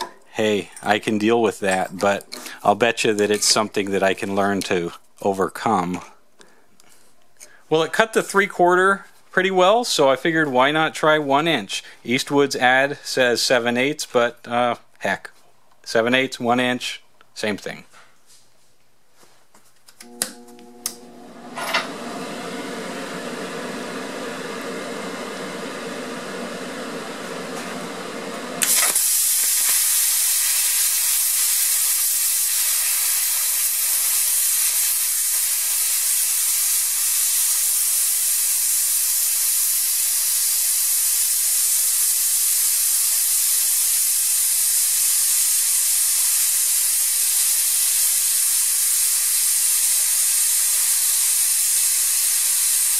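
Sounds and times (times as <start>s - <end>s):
steady electrical hum: 18.2s - 46.6s
plasma cutter arc hissing: 25.4s - 52.9s.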